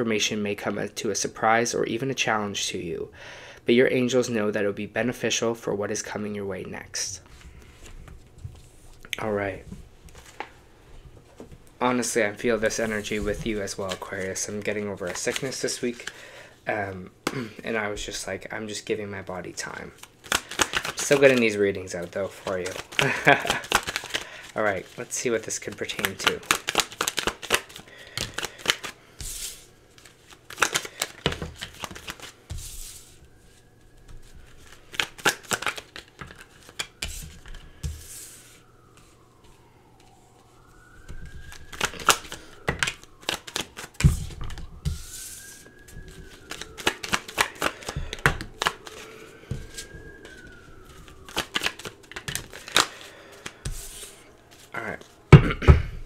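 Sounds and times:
cards being shuffled and dealt: 0:10.1 - 0:10.6, 0:11.4 - 0:16.2, 0:20.0 - 0:40.2, 0:41.4 - 0:55.2.

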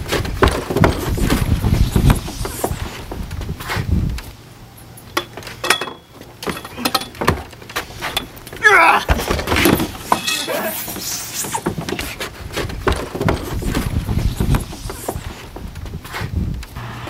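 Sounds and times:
knocks on wooden deck: 0:00.3 - 0:02.3, 0:12.8 - 0:15.7.

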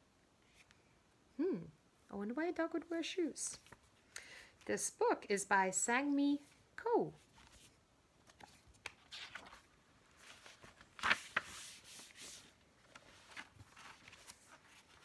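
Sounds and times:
paper pages rustling: 0:07.2 - 0:15.0.

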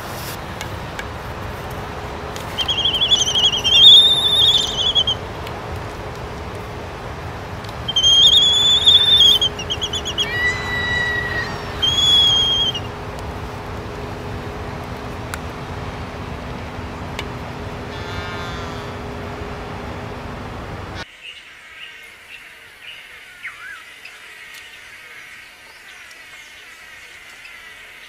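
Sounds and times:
albatross buzzy call: 0:02.5 - 0:05.3, 0:07.8 - 0:13.0, 0:17.9 - 0:19.2
albatross whistled calls: 0:02.5 - 0:05.3, 0:07.8 - 0:13.0, 0:17.9 - 0:19.1.

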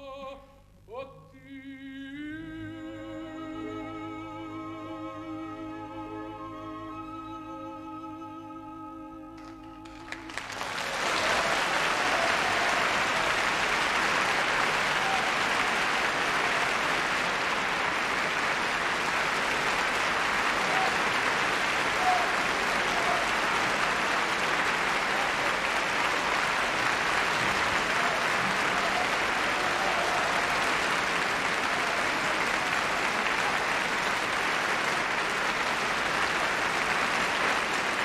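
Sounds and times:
audience applause: 0:09.4 - 0:38.0.

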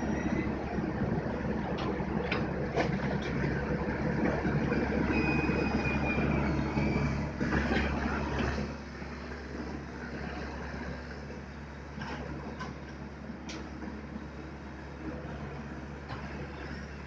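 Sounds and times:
high squeal: 0:00.0 - 0:00.5, 0:04.7 - 0:07.2
excavator diesel engine under load: 0:00.0 - 0:17.0.

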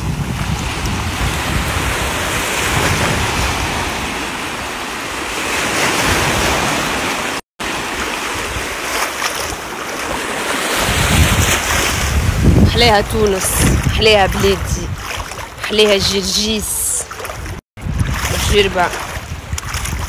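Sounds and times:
wind buffeting microphone: 0:00.0 - 0:04.6, 0:10.8 - 0:20.0
sea waves washing: 0:00.0 - 0:20.0.

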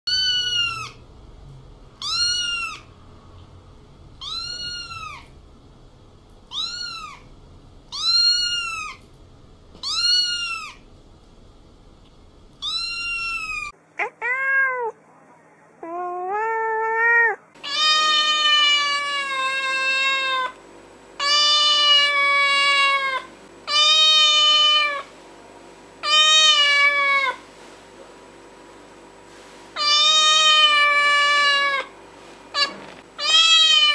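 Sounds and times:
adult cat meowing: 0:00.1 - 0:01.0, 0:02.0 - 0:02.9, 0:04.2 - 0:05.3, 0:06.5 - 0:07.3, 0:09.8 - 0:10.8, 0:12.6 - 0:15.0, 0:15.8 - 0:20.5, 0:32.6 - 0:33.9
kitten meowing: 0:00.1 - 0:01.0, 0:02.0 - 0:02.9, 0:04.2 - 0:05.3, 0:06.5 - 0:07.3, 0:07.9 - 0:09.0, 0:09.8 - 0:10.8, 0:12.6 - 0:15.0, 0:15.8 - 0:20.5, 0:26.0 - 0:27.4, 0:29.8 - 0:31.9, 0:32.6 - 0:33.9.

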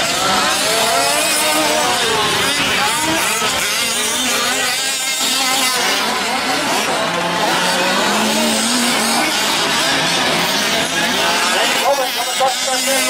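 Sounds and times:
rc truck engines revving: 0:00.0 - 0:13.0.

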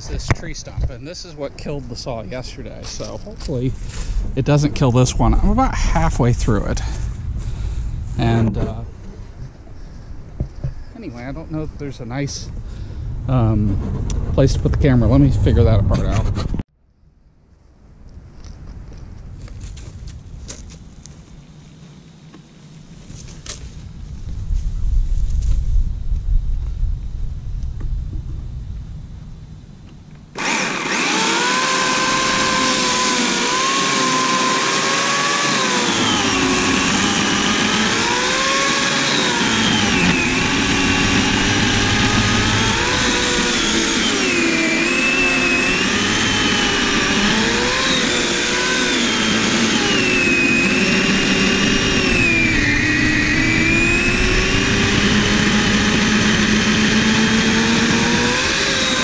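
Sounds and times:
electric chainsaw cutting wood: 0:30.3 - 0:59.0.

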